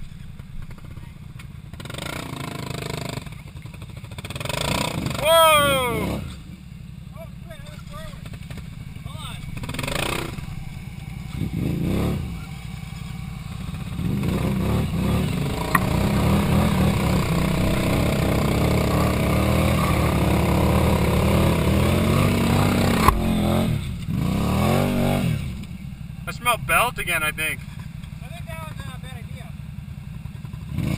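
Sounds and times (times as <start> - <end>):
engine revving hard: 1.8 - 3.4, 4.2 - 6.4, 8.0 - 10.7, 11.3 - 12.9, 13.6 - 25.6, 30.7 - 30.9.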